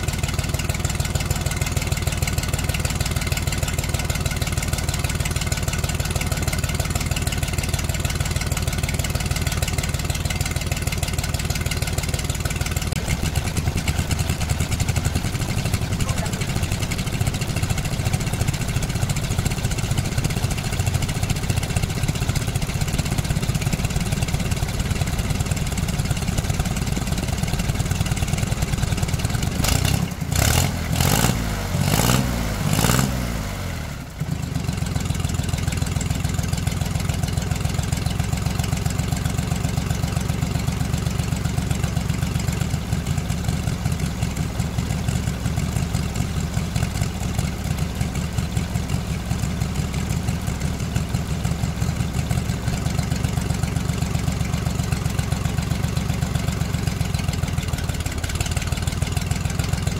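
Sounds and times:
engine idling and revving: 0:00.0 - 0:59.9.

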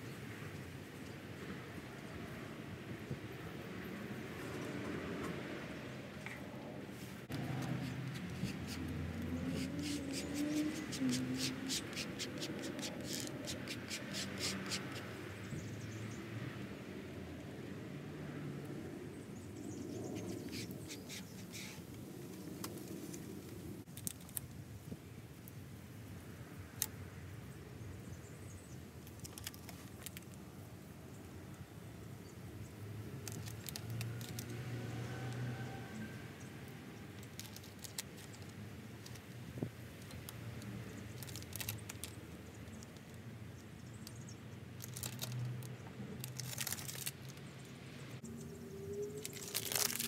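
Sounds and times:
tape clicks and crackles: 0:07.3 - 0:15.0, 0:23.9 - 0:24.6, 0:29.0 - 0:30.4, 0:33.2 - 0:34.6, 0:37.2 - 0:39.4, 0:40.0 - 0:43.2, 0:44.8 - 0:47.4, 0:49.2 - 0:50.0
fingers rubbing decal on metal: 0:07.4 - 0:15.2.

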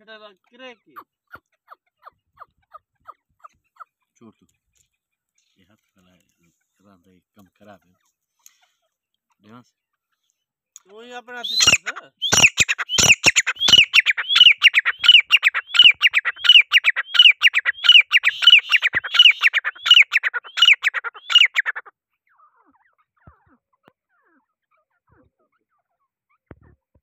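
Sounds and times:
francolin calling: 0:11.4 - 0:21.9.

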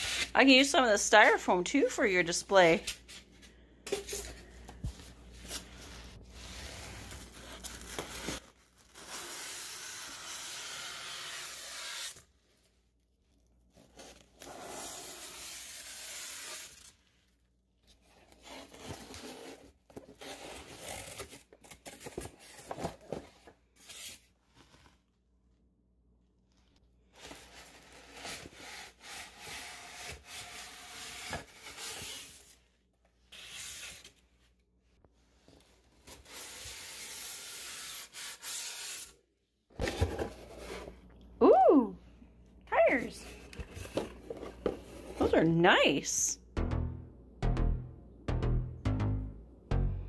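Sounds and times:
styrofoam squeaking and scraping: 0:05.6 - 0:12.6, 0:13.9 - 0:17.2, 0:27.1 - 0:32.6, 0:35.8 - 0:39.1.

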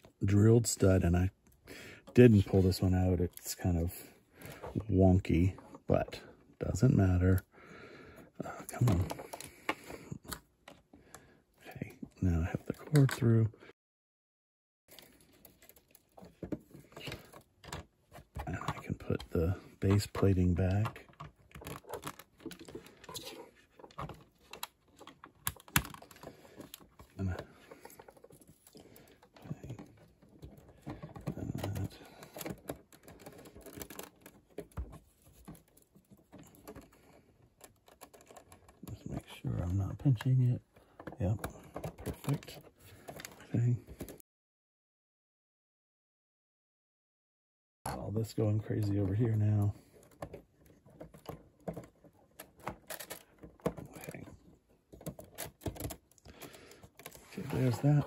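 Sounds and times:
plastic pieces clicking and knocking: 0:14.9 - 0:39.0.

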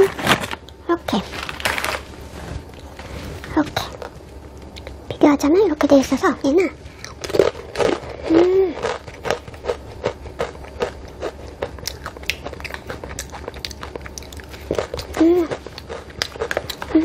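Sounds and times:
closed-mouth hum: 0:00.0 - 0:17.0
chips crunching while chewed: 0:07.0 - 0:17.0.

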